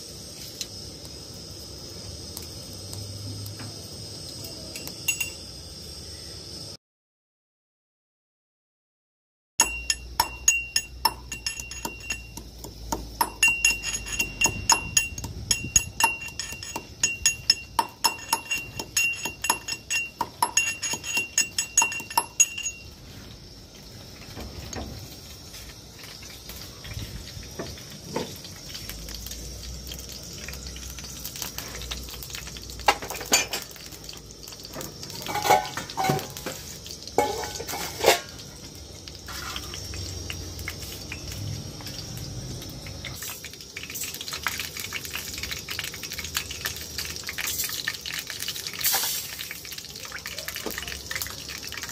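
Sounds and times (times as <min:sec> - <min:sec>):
cookware clinking: 0:04.8 - 0:05.4, 0:09.6 - 0:23.0, 0:32.9 - 0:33.7, 0:35.2 - 0:36.6, 0:37.2 - 0:38.4
metal pestle striking mortar: 0:09.6 - 0:22.8.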